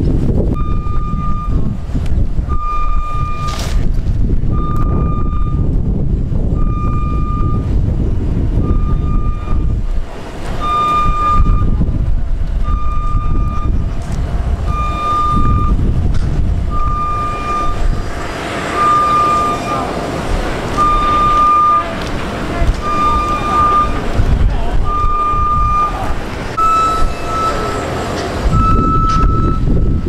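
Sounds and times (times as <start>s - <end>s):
engine rumbling: 0.0s - 30.0s
reversing alarm beeping: 0.5s - 1.8s, 2.5s - 3.8s, 4.5s - 5.9s, 6.5s - 7.8s, 8.6s - 9.9s, 10.6s - 12.0s, 12.6s - 14.0s, 14.6s - 16.0s, 16.7s - 18.0s, 18.6s - 24.2s, 24.8s - 30.0s.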